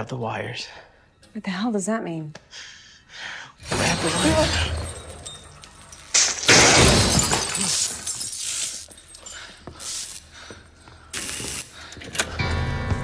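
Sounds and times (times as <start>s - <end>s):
shattering crash: 3.6s - 8.2s.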